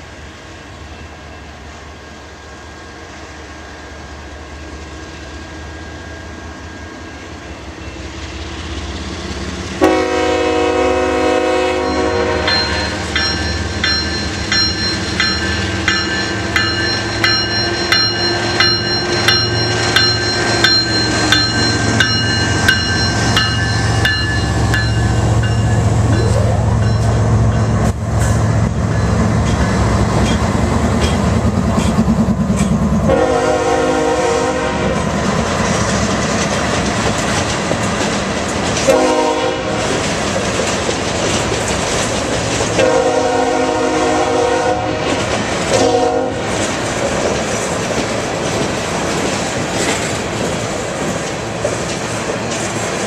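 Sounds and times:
diesel locomotive engines humming: 0.0 - 53.0
train bell ringing: 5.6 - 8.4, 11.7 - 30.4
locomotive horn blasts: 9.8 - 13.0, 33.1 - 35.0, 38.9 - 39.8, 42.8 - 46.5
train wheels clickety-clack: 11.6 - 33.6, 34.2 - 53.0.

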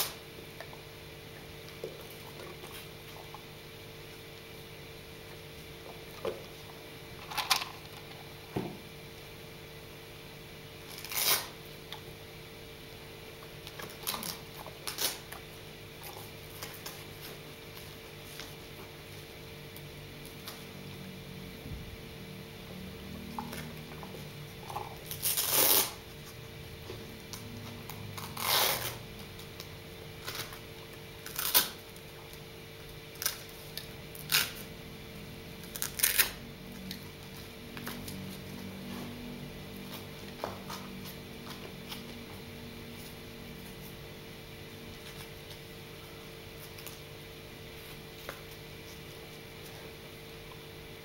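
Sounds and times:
velcro straps tearing: 10.9 - 11.6, 13.8 - 15.2, 25.0 - 26.0, 28.1 - 29.0, 31.2 - 31.9, 34.2 - 34.7, 35.7 - 36.4.

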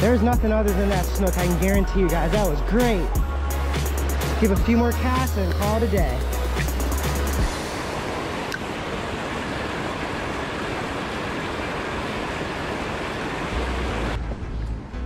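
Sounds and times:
water gushing into creek: 7.4 - 14.2.

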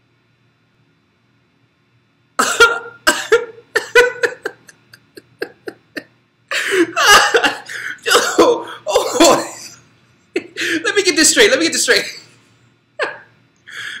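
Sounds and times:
man laughing: 2.4 - 11.1, 13.0 - 13.3.

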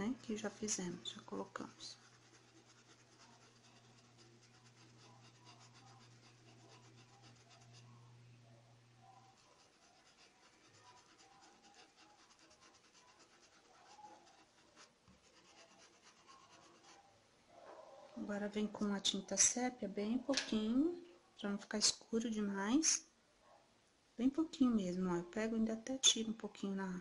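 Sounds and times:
paintbrush rubbing on towel: 0.0 - 8.1, 9.0 - 17.1
low steady hum: 0.0 - 11.2.

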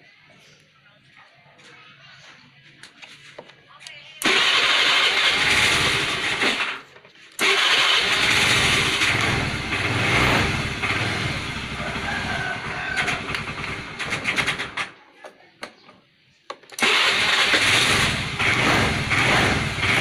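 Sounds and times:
scooter engine starting and idling: 4.2 - 15.0, 16.7 - 20.0.

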